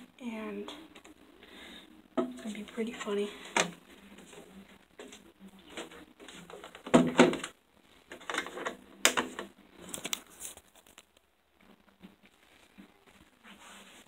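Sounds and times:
phone handling rustling and clicks: 0:08.1 - 0:11.2.

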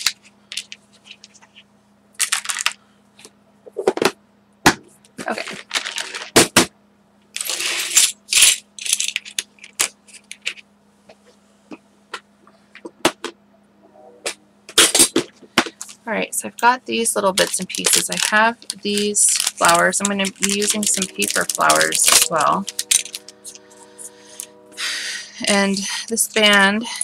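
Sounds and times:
rustling of craft pieces: 0:00.0 - 0:01.6, 0:02.2 - 0:03.3, 0:05.2 - 0:06.4, 0:07.4 - 0:10.6, 0:17.0 - 0:24.5
small hard pieces clicking: 0:02.2 - 0:02.8, 0:07.4 - 0:10.6, 0:17.4 - 0:23.6.

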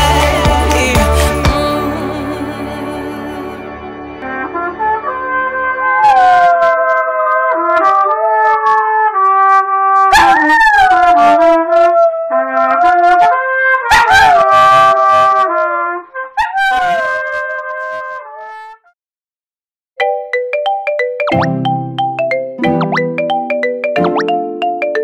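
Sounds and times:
trumpet playing held notes: 0:00.0 - 0:18.6
dog howling: 0:06.0 - 0:07.5, 0:10.1 - 0:13.2, 0:16.4 - 0:17.2.

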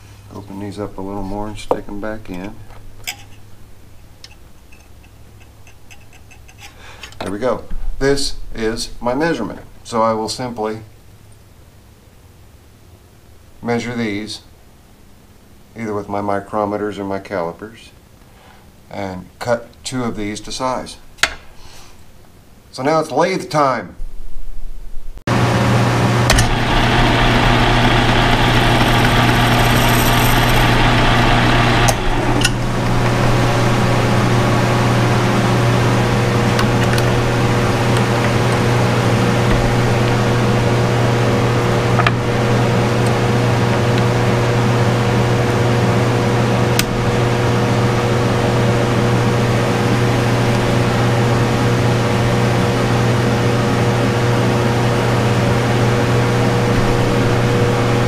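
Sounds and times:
machine humming: 0:25.2 - 0:58.0.

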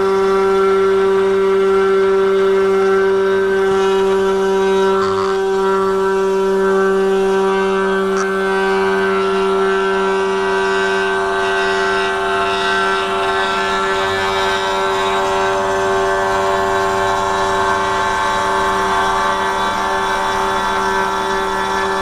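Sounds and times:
cnc router spindle whine: 0:00.0 - 0:22.0
end mill cutting wood: 0:00.0 - 0:22.0.

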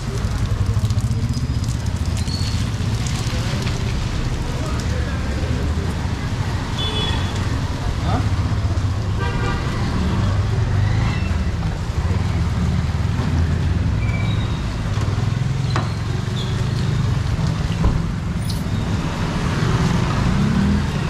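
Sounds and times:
vehicle engines rumbling: 0:00.0 - 0:21.0.

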